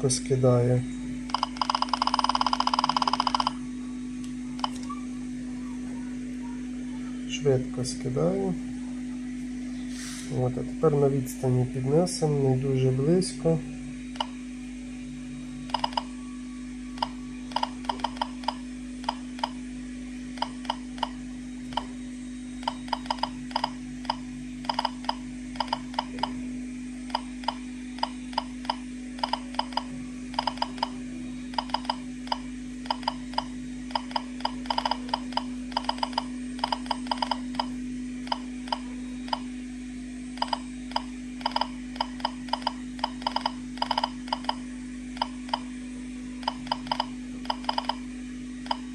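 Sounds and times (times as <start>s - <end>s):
steady low hum: 0.0s - 48.9s
geiger counter clicking: 1.3s - 3.6s, 4.6s - 4.9s, 14.2s - 14.4s, 15.7s - 16.1s, 17.0s - 19.6s, 20.4s - 22.0s, 22.6s - 26.4s, 27.1s - 39.5s, 40.3s - 44.6s, 45.2s - 45.7s, 46.4s - 48.0s, 48.6s - 48.9s.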